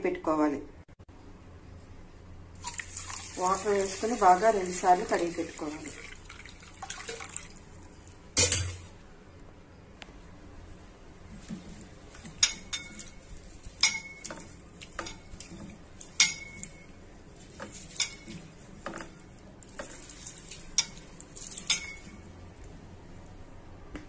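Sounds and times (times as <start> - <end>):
rice swishing in water: 2.6 - 7.5, 19.6 - 22.1
clinks against steel bowl: 13.8 - 15.3, 16.2 - 16.9.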